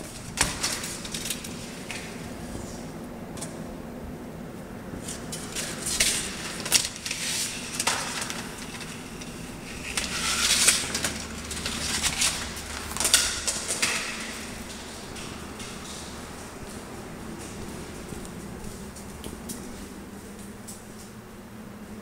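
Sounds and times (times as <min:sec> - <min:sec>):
low steady hum: 0:00.0 - 0:22.0
footsteps scuffing: 0:11.7 - 0:21.2.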